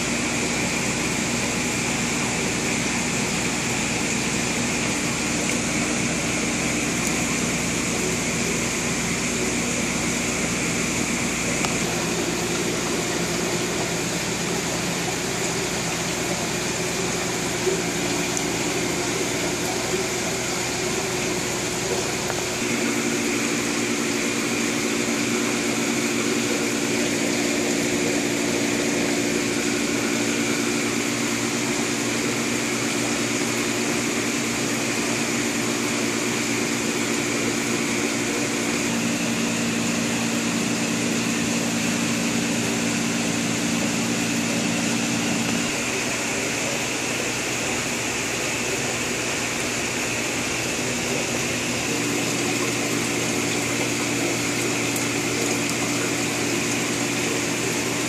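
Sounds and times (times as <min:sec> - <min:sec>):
air pumps humming: 0:00.0 - 0:58.0.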